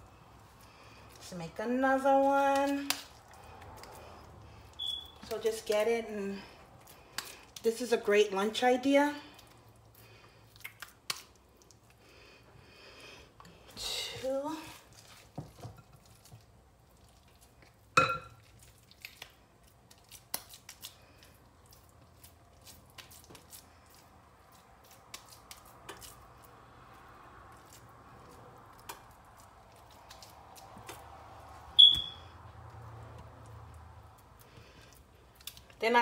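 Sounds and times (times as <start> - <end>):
dishes clinking: 18.0 - 18.4.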